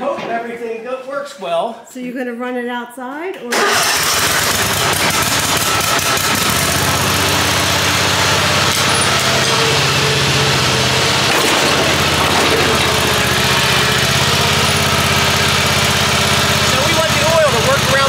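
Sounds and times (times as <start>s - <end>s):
mower engine idling: 3.6s - 18.0s.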